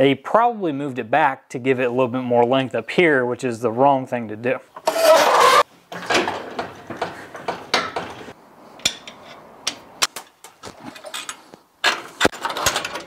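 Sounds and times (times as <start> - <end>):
metal clicks clanks and rattles: 5.9 - 13.0.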